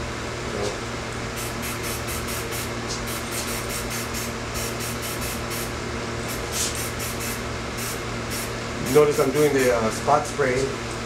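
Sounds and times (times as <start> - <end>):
spray paint can hissing in spurts: 1.4 - 5.7, 6.3 - 8.5.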